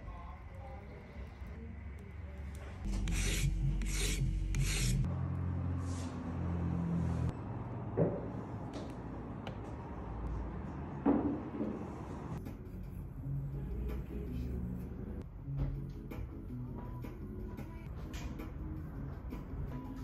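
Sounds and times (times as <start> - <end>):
rasping scrapes: 2.8 - 5.1.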